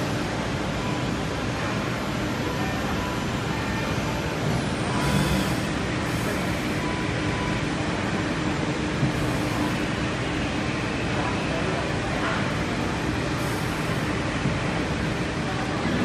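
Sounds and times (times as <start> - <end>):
wood router running: 5.0 - 6.4.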